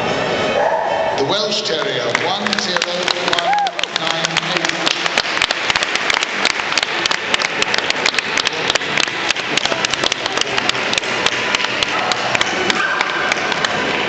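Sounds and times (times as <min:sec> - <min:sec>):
audience applauding: 0:01.6 - 0:14.0
close individual claps: 0:01.8 - 0:14.0.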